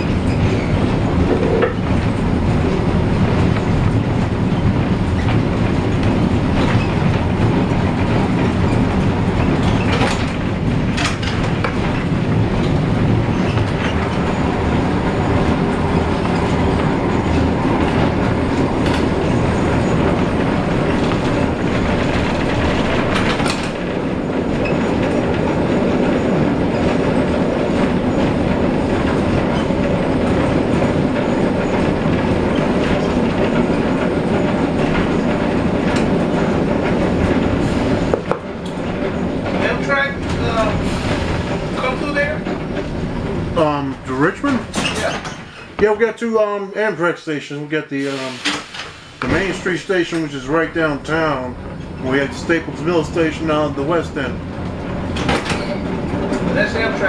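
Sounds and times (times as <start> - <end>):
streetcar wheels and motors rumbling: 0.0 - 57.0.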